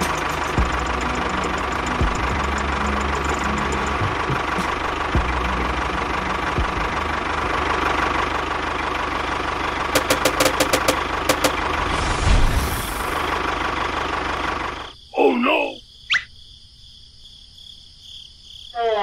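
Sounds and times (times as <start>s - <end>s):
tractor engine idling: 0.0s - 15.8s
quick clicks: 10.0s - 11.6s.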